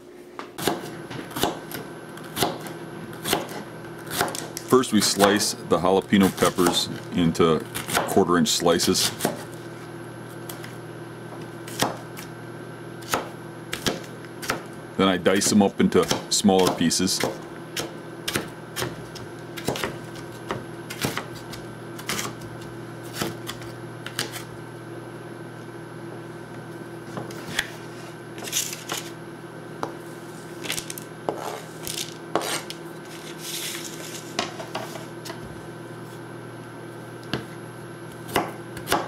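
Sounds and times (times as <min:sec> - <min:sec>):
steady low hum: 0:00.0 - 0:39.0
knife chopping on plastic board: 0:00.5 - 0:05.5, 0:06.2 - 0:07.0, 0:07.8 - 0:09.6, 0:10.5 - 0:12.3, 0:13.0 - 0:14.7, 0:15.3 - 0:24.4, 0:32.3 - 0:32.7, 0:37.3 - 0:39.0
scraping pieces off board: 0:30.6 - 0:35.4.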